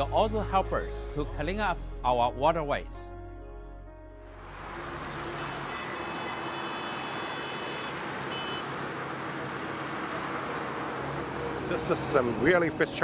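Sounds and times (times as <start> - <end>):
passing cars and scooters: 4.3 - 13.0.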